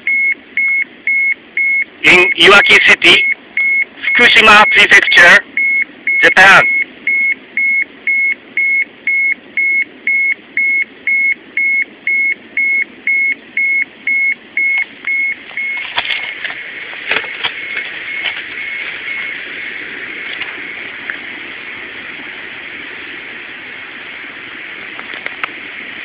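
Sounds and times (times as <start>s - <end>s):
dosimeter alarm beeping: 0.0s - 15.9s, 17.6s - 19.4s
steady hiss: 18.5s - 26.0s.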